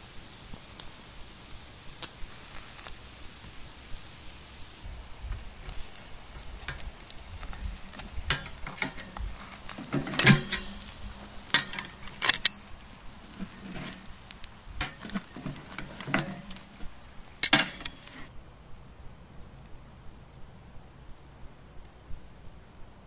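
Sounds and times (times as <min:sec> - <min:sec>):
meat sizzling: 0:00.0 - 0:18.4
metal tongs clanking on grill grate: 0:05.6 - 0:18.3.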